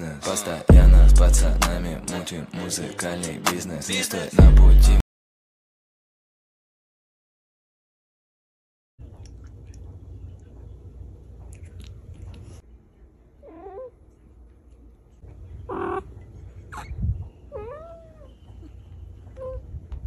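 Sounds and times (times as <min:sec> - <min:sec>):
cat meowing: 0:13.4 - 0:13.9, 0:15.7 - 0:16.1, 0:17.5 - 0:18.4.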